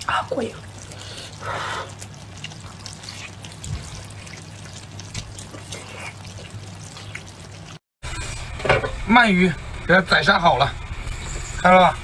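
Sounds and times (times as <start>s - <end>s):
wet chewing and slurping: 0.4s - 7.8s.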